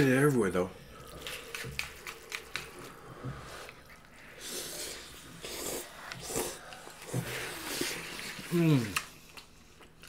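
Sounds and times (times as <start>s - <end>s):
noodles being slurped: 1.0s - 9.5s
person breathing: 2.7s - 8.8s.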